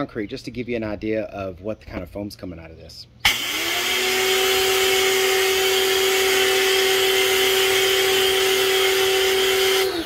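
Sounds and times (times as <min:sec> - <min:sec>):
pressure washer motor hum: 0:03.2 - 0:10.0.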